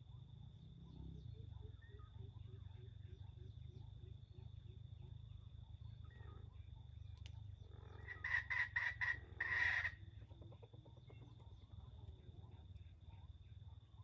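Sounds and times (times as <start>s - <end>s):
junglefowl calling: 7.8s - 10.2s.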